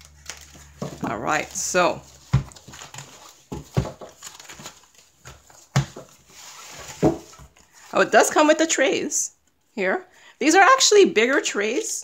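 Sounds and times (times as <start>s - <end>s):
plastic bag and foam rustling: 0.0s - 8.3s.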